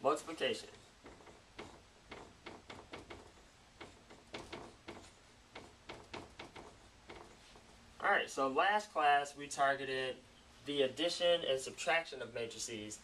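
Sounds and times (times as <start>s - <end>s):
marker writing on whiteboard: 0.4s - 7.8s.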